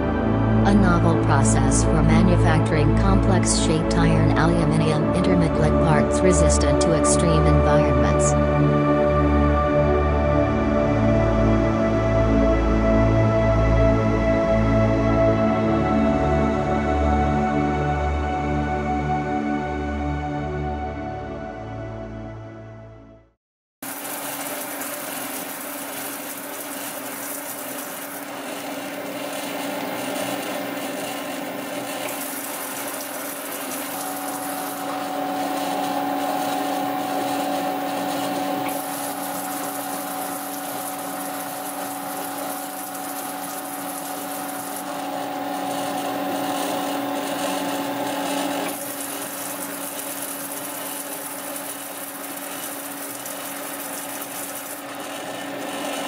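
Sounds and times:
grinding machine motor hum: 23.8s - 56.0s
high whine: 26.3s - 56.0s.

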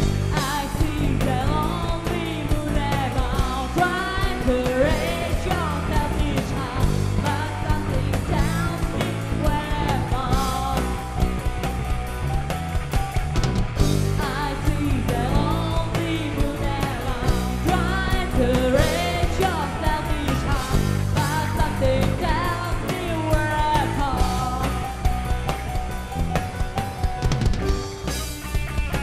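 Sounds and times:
woman singing: 0.0s - 11.4s, 14.1s - 25.2s
bass guitar: 0.0s - 29.0s
drum kit beat: 0.0s - 29.0s
electric guitars: 0.0s - 29.0s.

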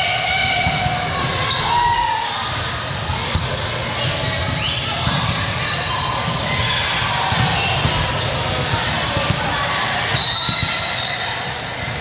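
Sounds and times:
volleyball hits: 0.3s - 1.8s, 3.2s - 11.0s
sneakers squeaking on court: 3.3s - 6.4s.

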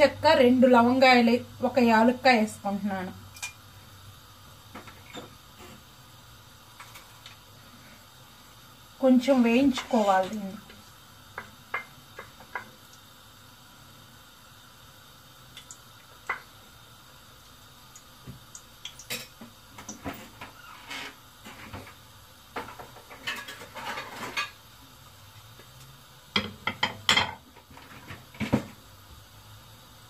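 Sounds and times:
spatula scraping in metal pot: 9.7s - 10.4s, 20.2s - 21.7s, 23.1s - 24.6s
dishes clinking: 26.4s - 27.4s.

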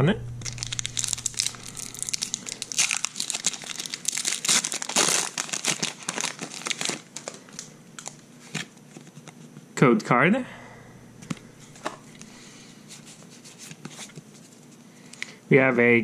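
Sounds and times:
foil pack tearing and crinkling: 0.4s - 8.8s.

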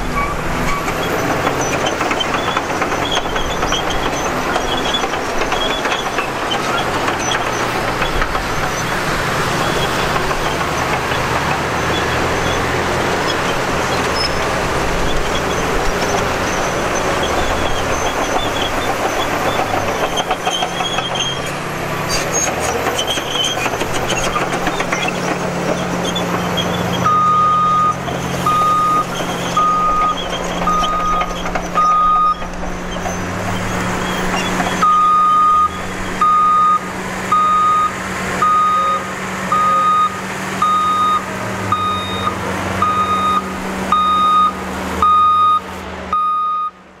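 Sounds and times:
heavy diesel engines running: 0.0s - 47.0s
reversing alarm beeping: 27.0s - 32.5s, 34.8s - 46.8s.

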